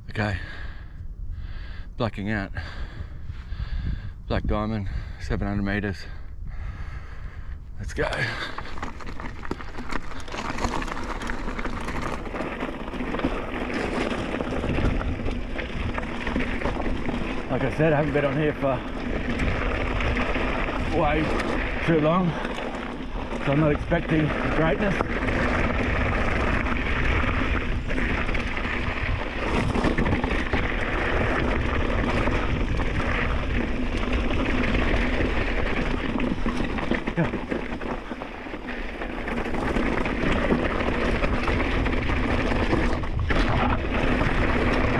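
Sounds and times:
wind on microphone: 0.0s - 10.3s, 13.2s - 18.0s
wind rumble on microphone: 0.0s - 44.9s
tyres crunching over dirt and stones: 7.8s - 44.9s
bike rattling: 7.9s - 44.9s.

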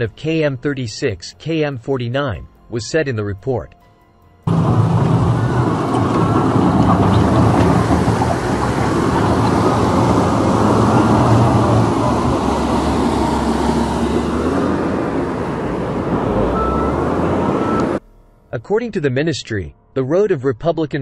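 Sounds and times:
flowing mud and water: 4.5s - 18.0s
diesel engine running: 4.5s - 18.1s.

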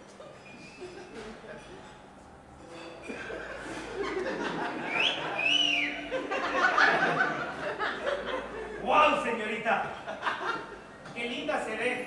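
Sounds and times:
audience laughing: 3.0s - 8.9s, 9.9s - 10.9s
two-note wolf whistle: 4.9s - 6.4s.

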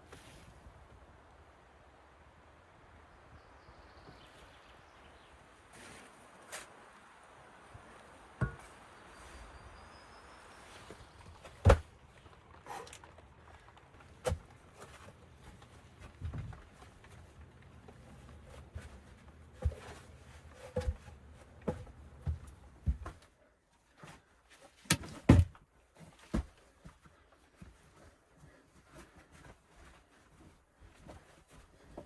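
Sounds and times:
log laid on dirt floor: 8.3s - 9.6s, 10.7s - 23.3s, 24.8s - 26.6s
boot steps: 10.7s - 23.4s.

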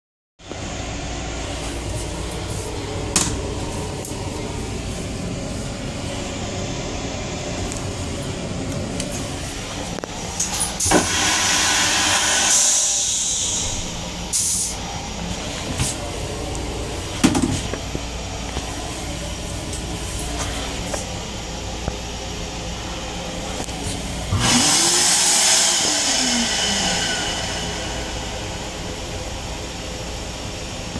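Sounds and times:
steady low rumble: 0.4s - 24.4s, 25.9s - 30.9s
motor whine: 0.4s - 30.9s
toilet flushing rush of air: 0.5s - 30.9s
toilet flush rushing: 10.8s - 14.8s, 24.1s - 29.0s.

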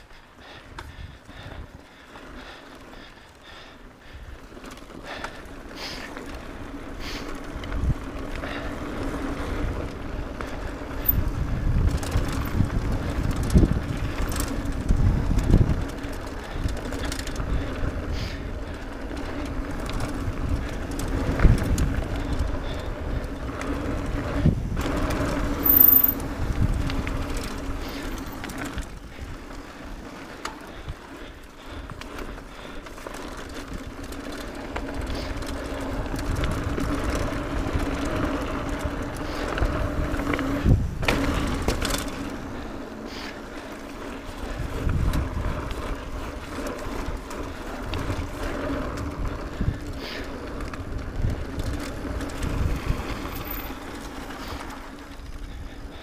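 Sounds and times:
bike knocking and rattling: 0.0s - 56.0s
tyres rumbling on dirt: 4.4s - 56.0s
wind rushing over microphone: 7.3s - 30.0s, 33.6s - 42.9s, 43.8s - 56.0s.

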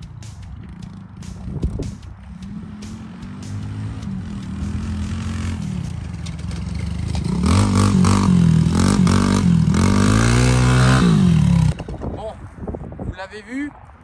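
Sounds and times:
motorcycle engine revving: 0.6s - 12.0s.

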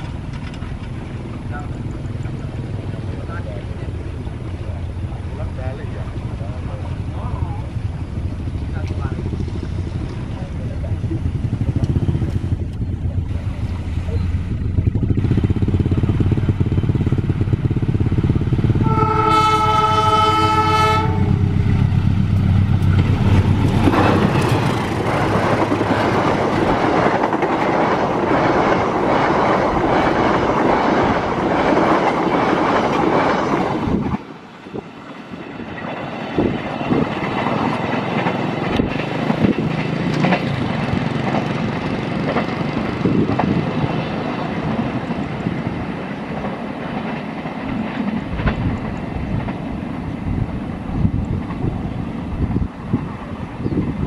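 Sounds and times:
train wheels clattering over rails: 0.0s - 53.9s
locomotive engine rumble: 0.0s - 54.0s
train horn blast: 18.8s - 21.6s.

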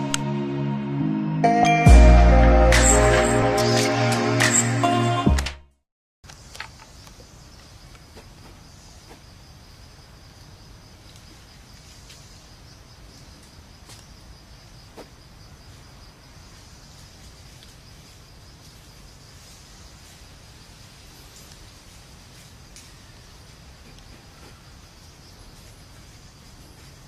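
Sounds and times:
insects trilling: 6.3s - 27.0s.

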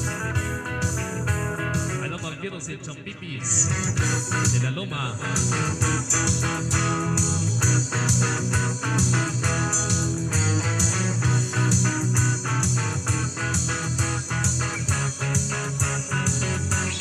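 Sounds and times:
bass line: 0.0s - 2.4s, 3.4s - 17.0s
plucked electric guitar melody: 0.0s - 17.0s
dance beat: 5.2s - 17.0s.

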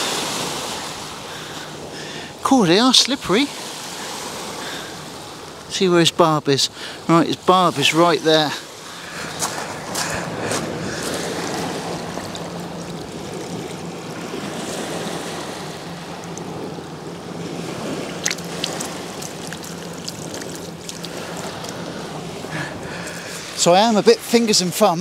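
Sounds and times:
waves lapping on shingle: 0.0s - 25.0s
water poured from bucket onto sand: 18.2s - 21.8s.

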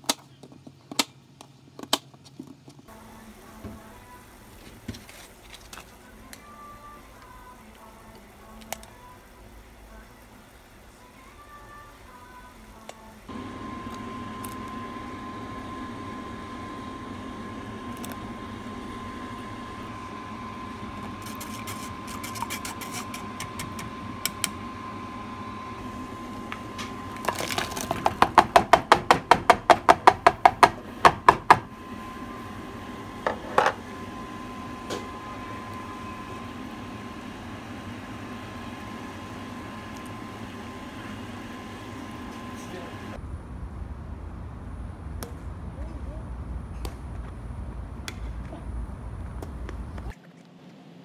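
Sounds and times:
pot of soup boiling: 6.8s - 43.2s.

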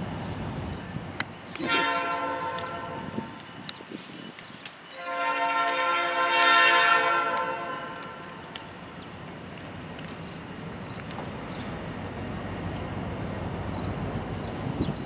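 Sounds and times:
low rumble of approaching train: 0.0s - 15.0s
locomotive air horn chord: 1.6s - 3.2s, 4.9s - 8.4s.

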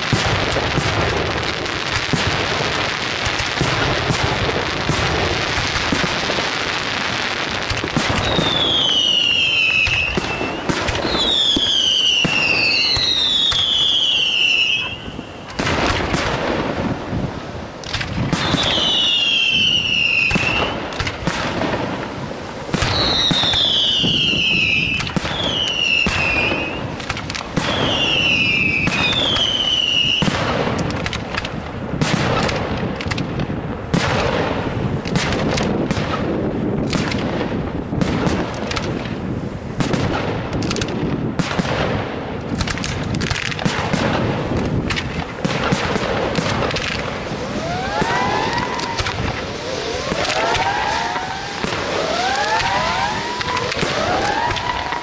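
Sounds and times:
rising firework whistles: 0.0s - 16.4s, 18.0s - 21.6s, 22.4s - 30.6s, 45.5s - 55.0s
falling firework whistles: 7.9s - 15.7s, 18.3s - 21.2s, 22.7s - 30.5s, 45.9s - 55.0s
firework shells bursting: 17.8s - 34.3s, 38.0s - 55.0s.

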